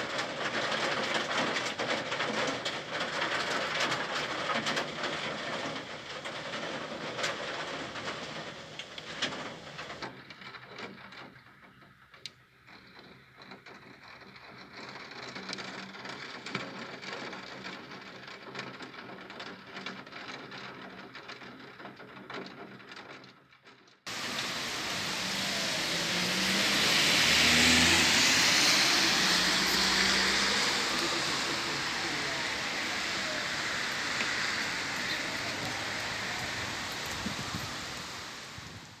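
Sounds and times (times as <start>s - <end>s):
heavy rain hiss: 0.0s - 10.0s, 24.1s - 39.0s.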